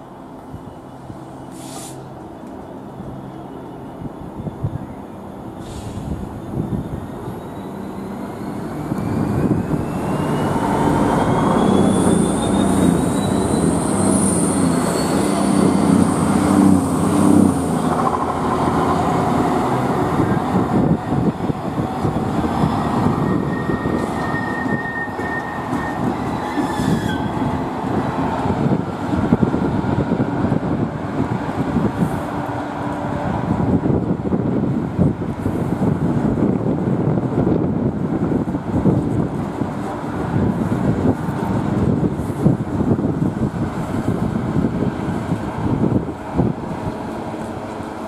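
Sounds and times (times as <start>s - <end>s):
diesel locomotive engine working hard: 0.0s - 48.0s
train wheels rumbling on rail: 0.3s - 48.0s
high wheel squeal: 5.6s - 17.2s, 22.6s - 27.5s.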